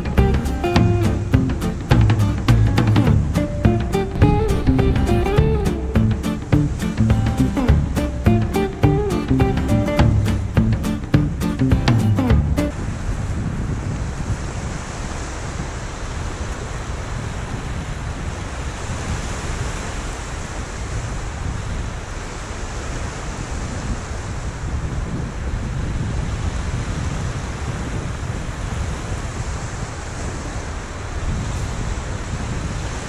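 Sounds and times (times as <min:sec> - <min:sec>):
wind buffeting microphone: 0:00.0 - 0:33.0
small waves washing on beach: 0:12.6 - 0:33.0.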